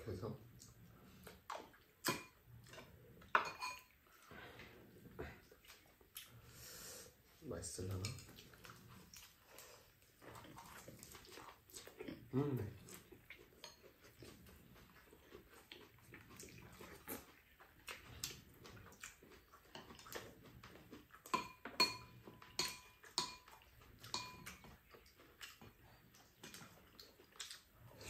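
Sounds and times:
metal spoon scraping dishes: 3.4 - 3.9.

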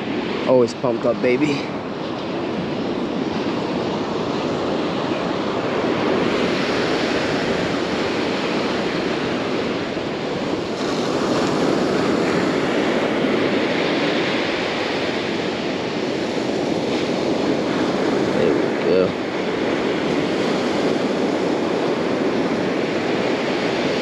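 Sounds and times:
ocean surf breaking: 0.0 - 24.0
wind on microphone: 0.0 - 24.0.

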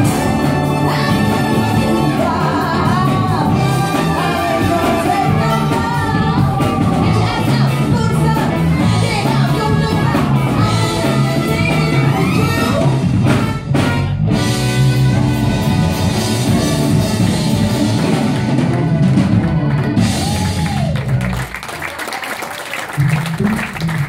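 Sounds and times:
live soul band: 0.0 - 21.5
woman singing: 0.4 - 12.9.

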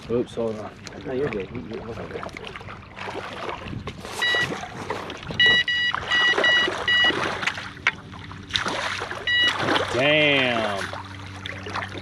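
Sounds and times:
water splashing: 0.4 - 12.0
short electronic beeps: 4.2 - 4.6, 5.4 - 7.2, 9.3 - 9.6.

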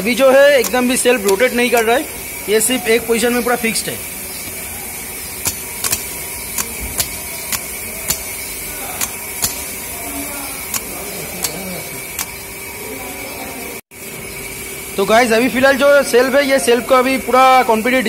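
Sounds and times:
starter motor clicking: 0.0 - 13.6.

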